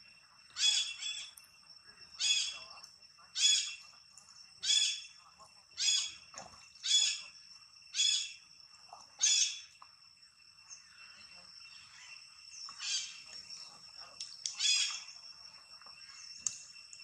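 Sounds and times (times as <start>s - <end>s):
steady high whine: 0.0s - 17.0s
monkey high-pitched cries: 0.6s - 1.3s, 9.2s - 9.6s.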